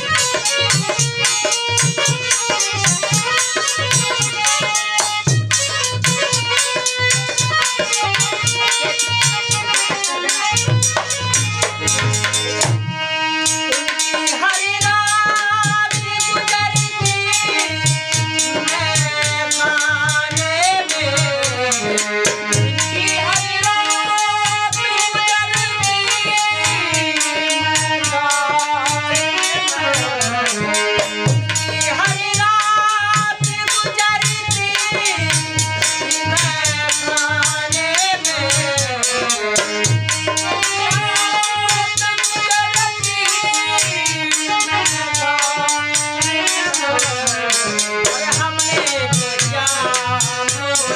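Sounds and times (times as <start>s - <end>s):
dholak drum beating: 0.0s - 50.9s
harmonium: 0.0s - 50.9s.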